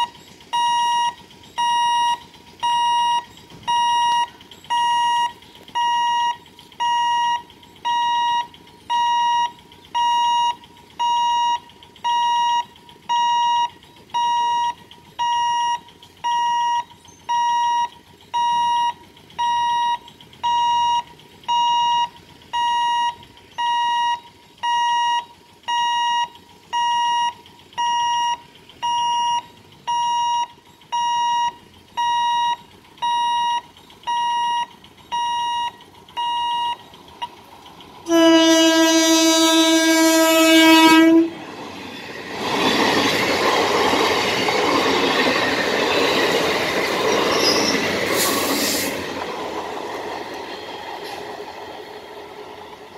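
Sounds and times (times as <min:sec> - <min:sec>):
level crossing alarm beeping: 0:00.0 - 0:37.4.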